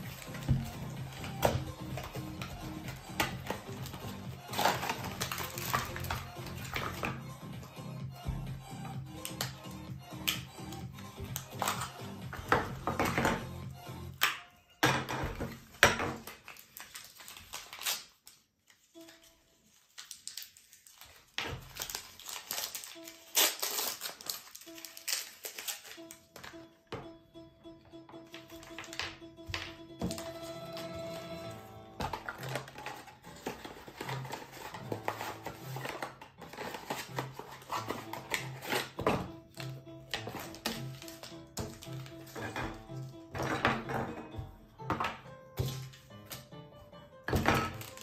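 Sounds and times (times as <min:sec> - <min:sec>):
cardboard and foil wrapper crinkling: 0:00.0 - 0:07.2, 0:15.3 - 0:26.6, 0:28.3 - 0:43.6, 0:47.3 - 0:48.0
background music with bass beat: 0:05.8 - 0:14.2.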